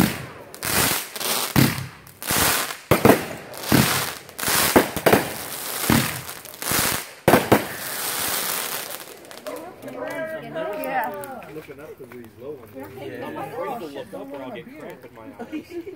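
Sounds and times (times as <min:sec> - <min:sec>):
fireworks bangs: 0:00.0 - 0:09.8
fireworks crackling: 0:00.0 - 0:15.9.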